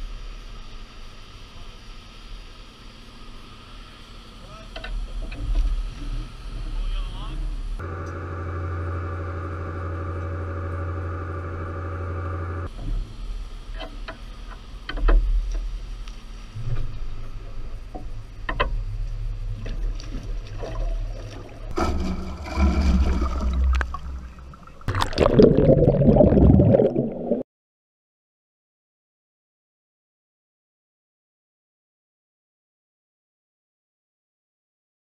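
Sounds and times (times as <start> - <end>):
steady machine hum: 0.0 - 27.4
water splashing and bubbling: 19.5 - 27.4
low rumble: 20.9 - 27.4.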